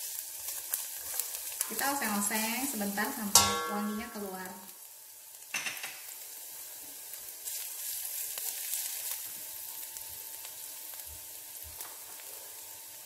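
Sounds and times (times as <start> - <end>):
garlic sizzling in oil: 0.0 - 13.0.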